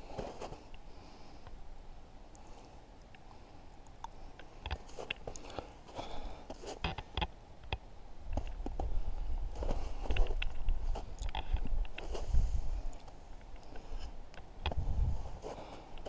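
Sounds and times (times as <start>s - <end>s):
footsteps crunching in snow: 0.0s - 0.6s, 4.8s - 6.9s, 8.4s - 13.2s, 14.8s - 16.0s.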